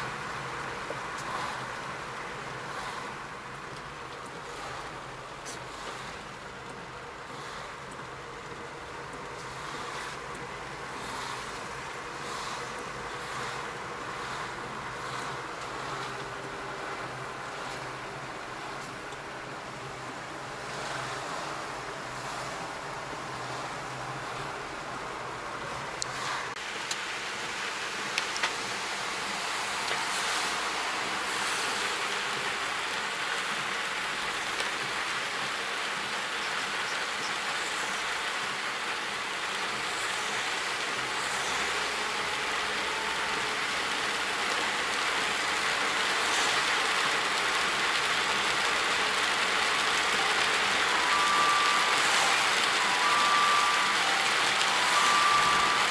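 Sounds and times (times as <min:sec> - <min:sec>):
heavy rain and tyre hiss: 0:00.0 - 0:55.9.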